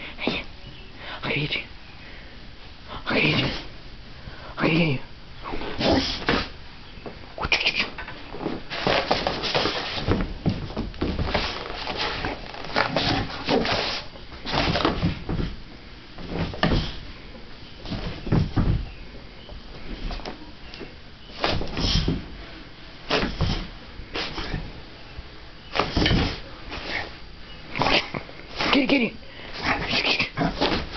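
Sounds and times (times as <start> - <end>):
dog thumping on floor and cardboard: 8.3 - 15.6, 16.2 - 17.1, 17.8 - 19.0, 19.8 - 22.4, 23.1 - 24.8, 25.7 - 27.2, 30.5 - 30.9.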